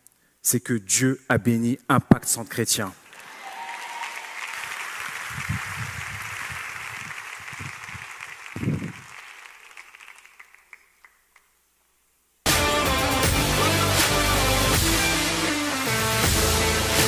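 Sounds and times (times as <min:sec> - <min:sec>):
audience applauding: 0:03.0 - 0:11.5.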